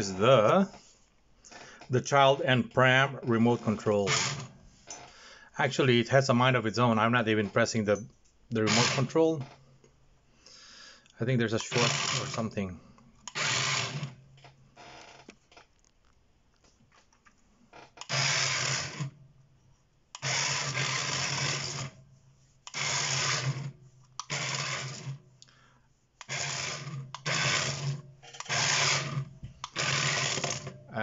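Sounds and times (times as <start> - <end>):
toy electric motors whirring: 3.7 - 4.5, 8.6 - 9.2, 11.5 - 12.6, 13.3 - 14.2, 18.0 - 19.2, 20.2 - 22.0, 22.6 - 25.2, 26.2 - 30.8.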